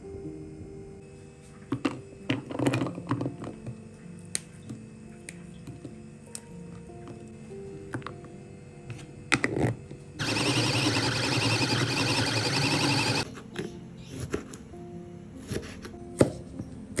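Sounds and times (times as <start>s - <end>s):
food chopper whirring: 10.2s - 13.2s.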